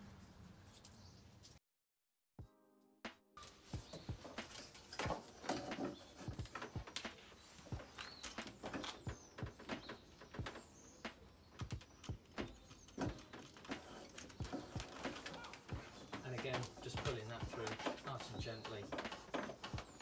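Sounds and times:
cable clicking and knocking on panels: 0:03.7 - 0:20.0.

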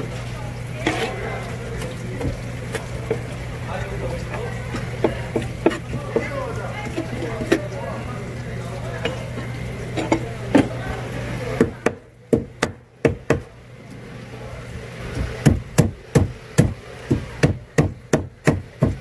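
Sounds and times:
knife chopping fish on wooden board: 0:05.0 - 0:06.3, 0:11.6 - 0:13.5, 0:15.4 - 0:19.0.

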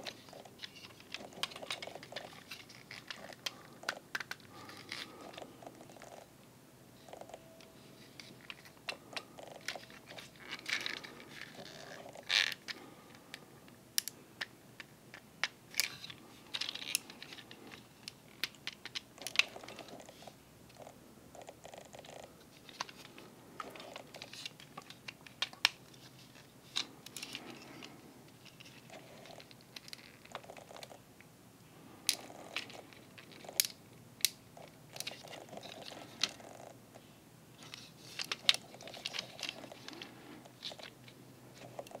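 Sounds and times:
plastic parts clicking and snapping: 0:00.0 - 0:06.1, 0:14.0 - 0:20.0, 0:22.6 - 0:30.4, 0:32.0 - 0:36.4, 0:37.6 - 0:42.0.

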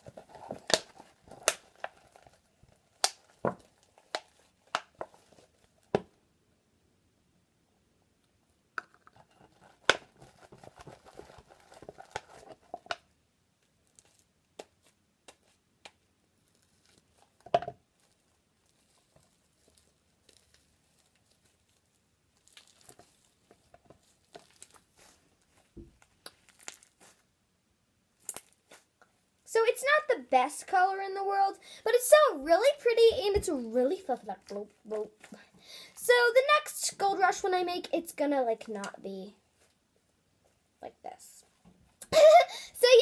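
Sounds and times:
slime crackling: 0:00.0 - 0:06.0, 0:09.1 - 0:13.0, 0:13.9 - 0:27.3, 0:28.2 - 0:29.0.

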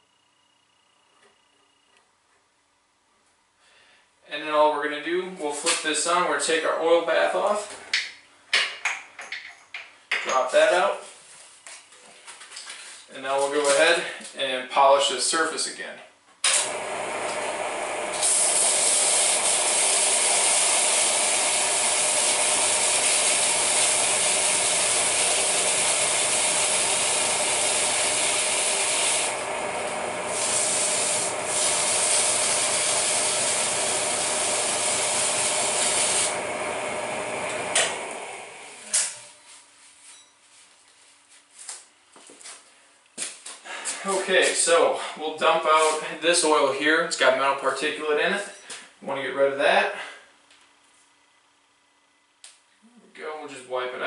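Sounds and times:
electric motor spinning: 0:16.6 - 0:39.2
hissing scrape of polishing: 0:18.1 - 0:29.4, 0:30.2 - 0:36.5.

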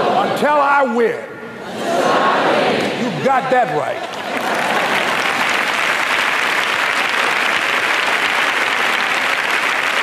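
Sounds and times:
large audience applauding: 0:03.8 - 0:10.0.

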